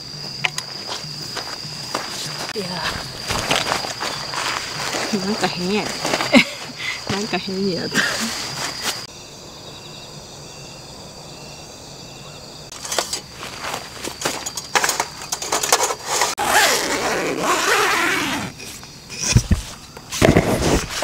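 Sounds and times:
night insects chirping: 0.0s - 21.0s
nylon fabric rustling: 2.0s - 9.1s, 15.8s - 18.6s.

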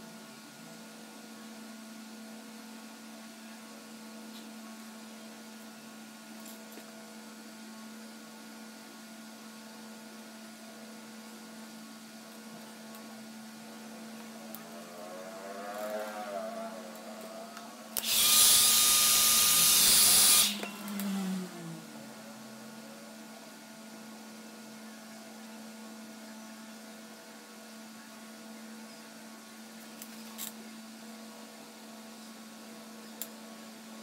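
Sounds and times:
low steady hum: 0.0s - 30.0s
hair dryer blowing: 16.9s - 22.1s.

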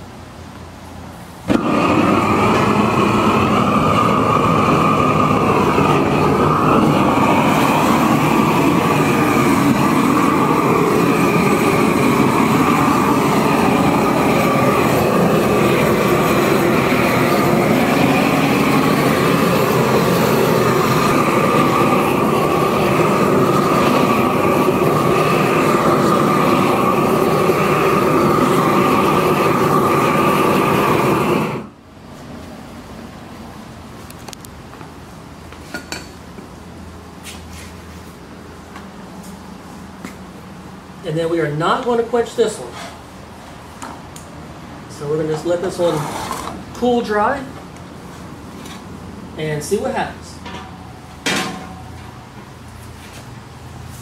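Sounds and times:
gas torch roaring: 0.0s - 54.0s.

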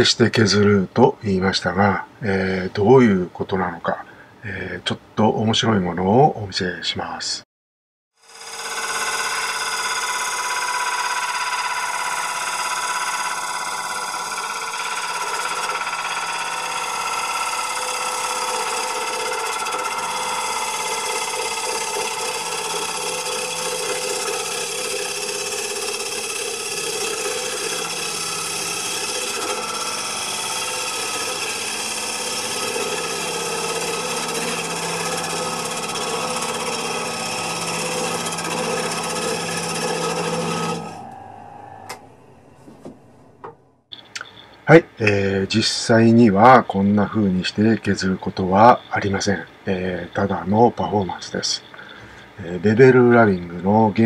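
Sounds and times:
lathe motor whine: 8.2s - 44.6s
gouge cutting wood hiss: 8.3s - 41.1s.

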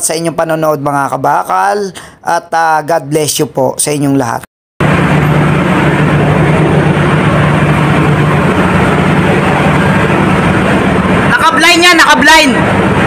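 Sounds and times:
engine-room machinery drone: 4.8s - 13.0s.

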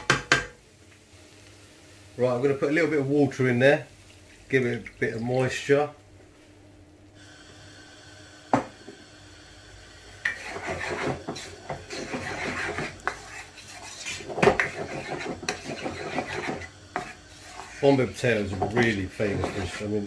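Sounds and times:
spoon knocking on pan: 0.0s - 0.6s
spoon stirring in frying pan: 10.2s - 20.0s.

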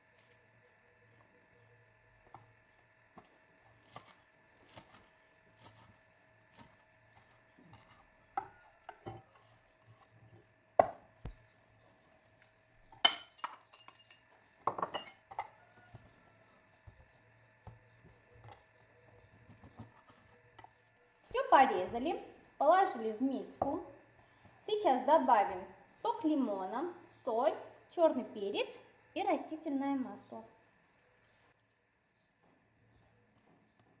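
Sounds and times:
knocks on wooden cutting board: 10.8s - 11.0s.

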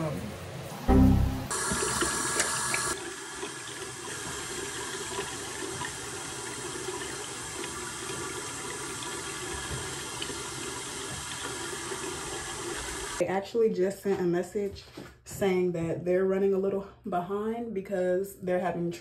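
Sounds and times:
faucet running: 1.3s - 13.2s.

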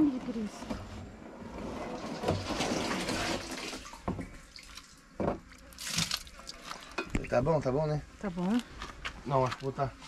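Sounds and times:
liquid pouring and splashing: 1.8s - 7.4s.

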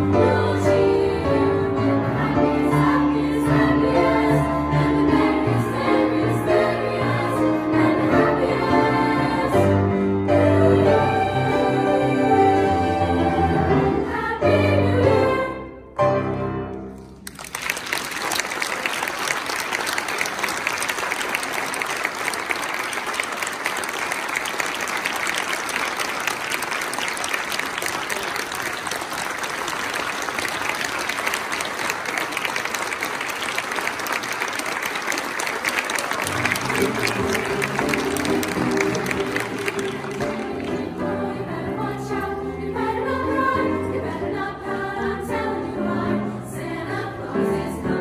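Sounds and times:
girls' choir with piano: 0.0s - 17.0s, 36.1s - 48.0s
audience applauding: 17.1s - 41.9s.

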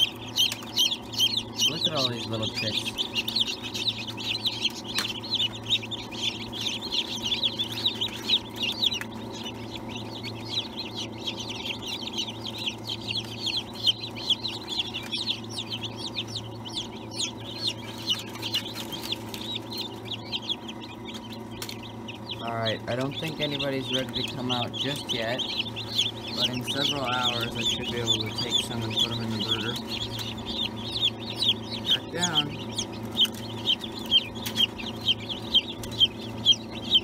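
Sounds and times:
chicks peeping: 0.0s - 37.0s
steady low hum: 0.0s - 37.0s.

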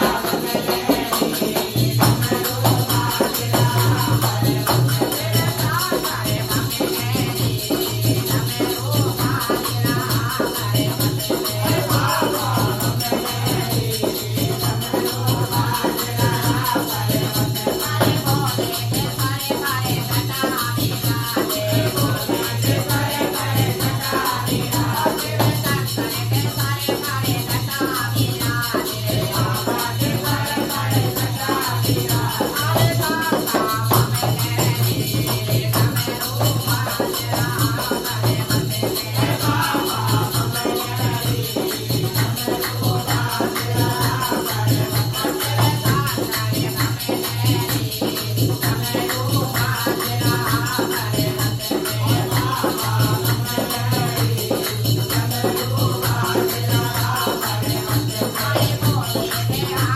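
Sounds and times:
dholak drum beat: 0.0s - 59.9s
group singing devotional song: 0.0s - 59.9s
jingling hand percussion: 0.0s - 59.9s
man singing lead: 0.0s - 59.9s.

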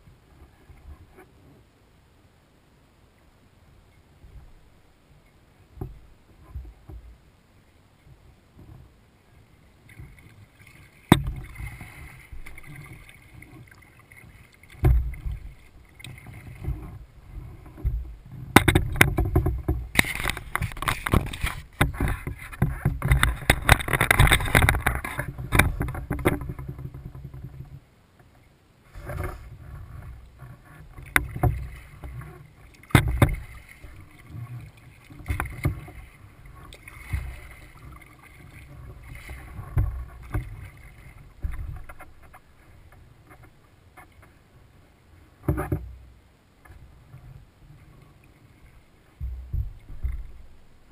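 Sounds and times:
paddle splashing water: 3.7s - 50.9s
sharp knocks: 11.1s - 11.5s.

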